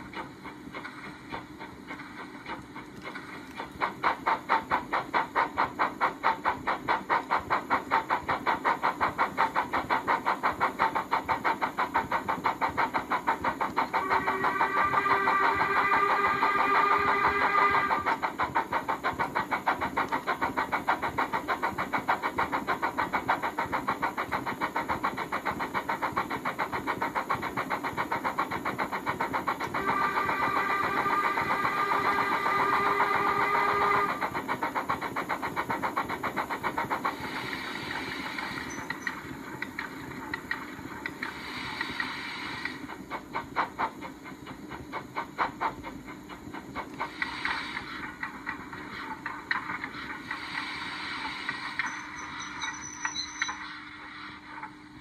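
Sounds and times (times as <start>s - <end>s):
steam locomotive exhaust chuff: 0.0s - 55.0s
steam locomotive whistle: 14.0s - 18.2s, 29.8s - 34.3s.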